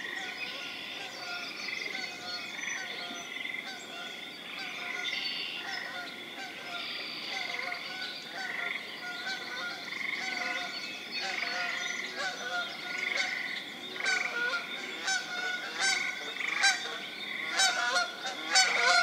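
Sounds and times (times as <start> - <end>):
frogs calling: 0.0 - 19.0
geese honking: 5.6 - 19.0.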